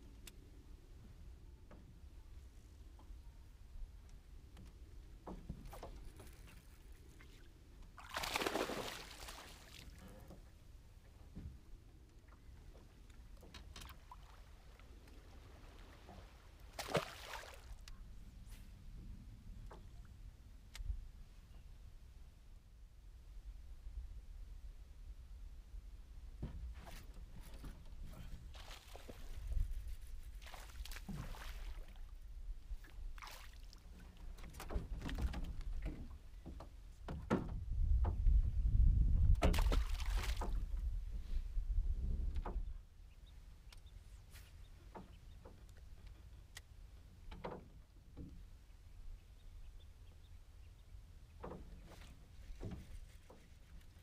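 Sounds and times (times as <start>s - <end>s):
fish splashing at water surface: 8.0s - 9.8s
wind rumble on microphone: 23.0s - 33.2s, 33.8s - 42.9s.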